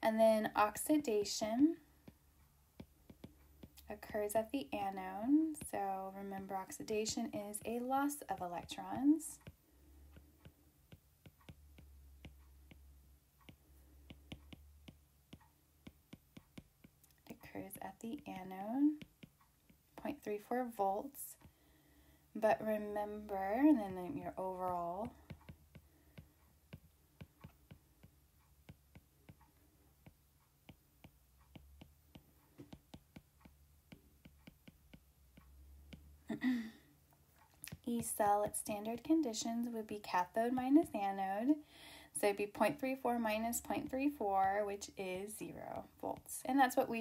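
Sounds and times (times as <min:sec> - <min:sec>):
low steady hum: 0:00.0 - 0:47.0
stylus tapping on glass screen: 0:02.8 - 0:05.9, 0:09.4 - 0:17.5, 0:23.1 - 0:36.2.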